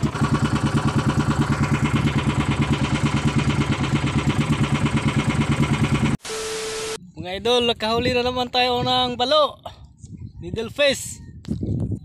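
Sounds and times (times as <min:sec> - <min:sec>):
boat engine running: 0:00.0 - 0:06.2.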